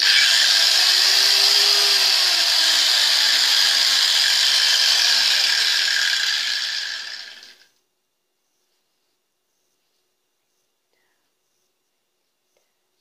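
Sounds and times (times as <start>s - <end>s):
angle grinder whirring: 0.0s - 7.7s.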